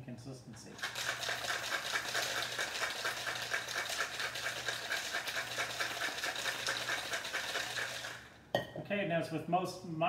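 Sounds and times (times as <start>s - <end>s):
ice rattling in cocktail shaker: 0.8s - 8.4s.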